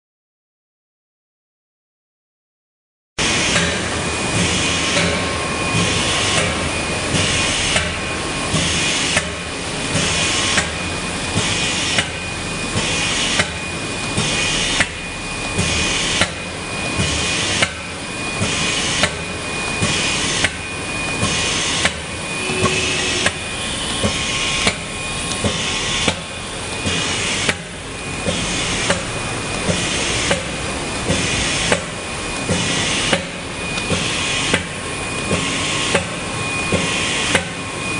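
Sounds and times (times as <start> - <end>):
printing machine clacking: 21.2 - 37.5.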